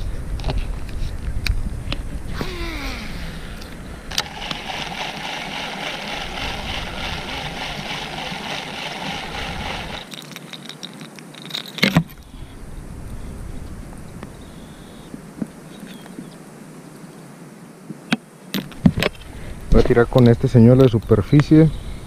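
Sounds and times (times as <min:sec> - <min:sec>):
fishing reel gear whirring: 0:02.4 - 0:10.1
loud clatter: 0:04.1 - 0:10.1.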